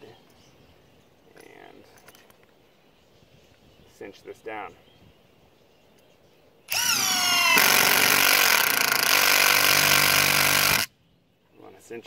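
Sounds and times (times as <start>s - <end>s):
impact driver motor whine: 6.7s - 10.9s
impact driver rattling: 6.7s - 10.9s.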